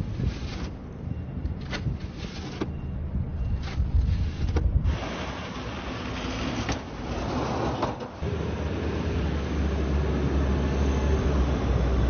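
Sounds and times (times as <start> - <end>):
snow shovel scraping sidewalk: 0.0 - 0.8, 1.6 - 2.8, 3.6 - 8.0
plow blade pushing snow: 0.0 - 0.9, 1.6 - 2.9, 3.5 - 12.0
snowplow truck engine running: 8.2 - 12.0.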